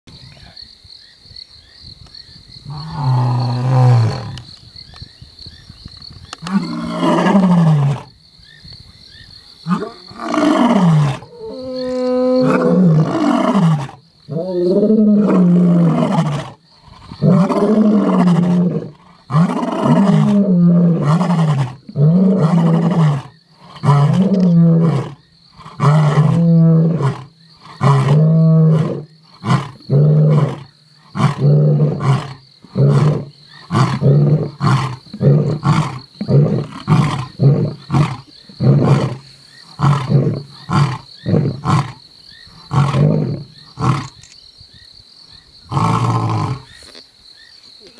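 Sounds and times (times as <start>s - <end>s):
lion roaring and grunting: 9.7s - 42.0s.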